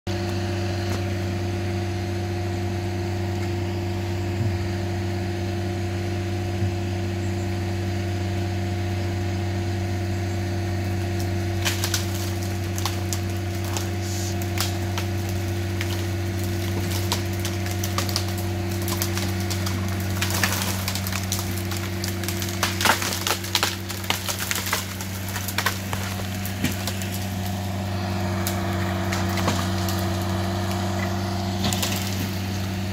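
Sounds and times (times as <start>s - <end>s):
loader engine running: 0.1s - 32.9s
branches cracking and splintering: 10.7s - 32.9s.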